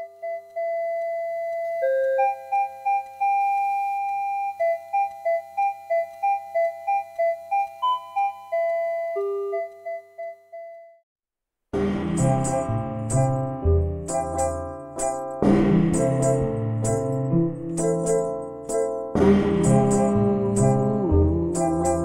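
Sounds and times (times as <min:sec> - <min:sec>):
beep-like melody: 0:00.0 - 0:11.0.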